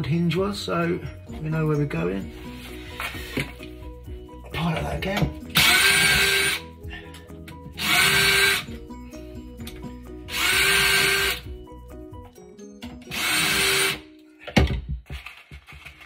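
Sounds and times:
cordless drill whining: 5.5 - 6.7, 7.8 - 8.7, 10.3 - 11.5, 13.1 - 14.0.

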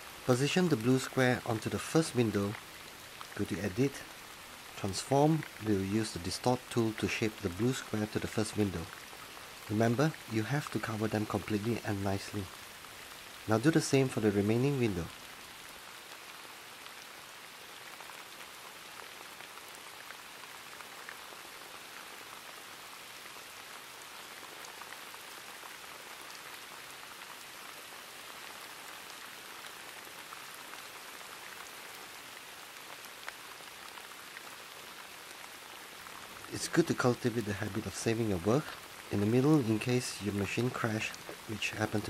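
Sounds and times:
faint raindrops: 0.0 - 42.0
steady rain: 0.0 - 42.0.

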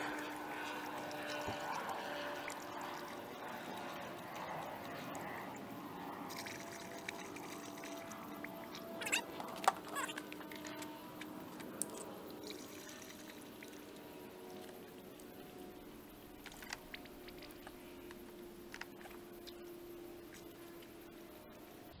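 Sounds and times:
liquid pouring through funnel: 0.0 - 15.6.

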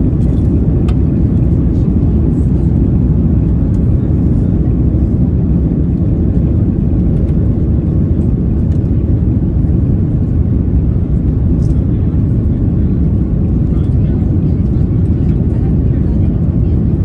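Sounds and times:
jet engines rumbling in cabin: 0.0 - 17.0.

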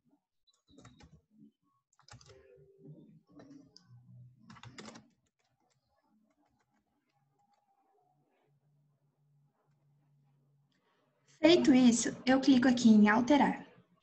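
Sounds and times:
faint keyboard typing: 0.5 - 1.3, 1.9 - 8.0.

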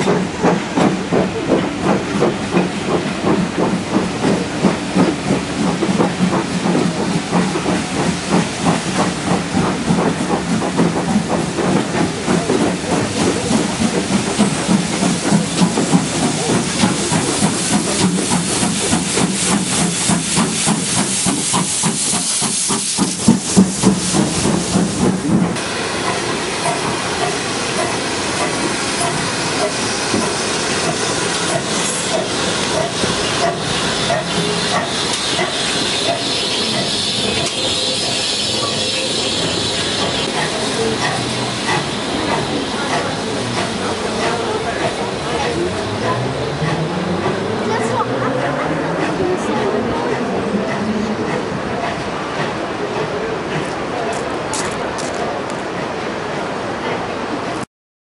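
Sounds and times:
steam hiss: 0.0 - 48.0
steam locomotive exhaust beats: 0.0 - 57.6.

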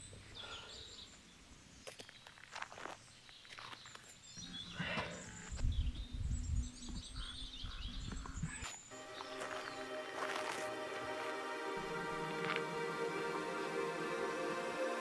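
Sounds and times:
small birds chirping: 0.0 - 10.7
music with steady tones: 8.9 - 15.0.

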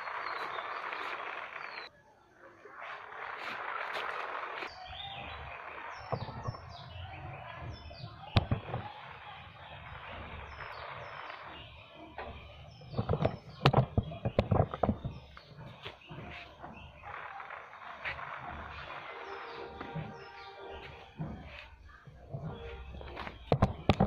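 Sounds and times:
small birds chirping: 0.0 - 24.0
steady outdoor hiss: 0.0 - 24.0
sharp knocks and clicks: 5.2 - 11.0, 11.6 - 17.2, 19.8 - 24.0.

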